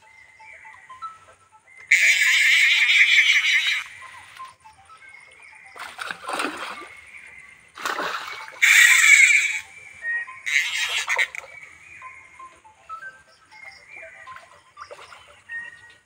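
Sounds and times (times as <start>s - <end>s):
fish splashing at surface: 5.8s - 6.9s, 7.8s - 8.6s.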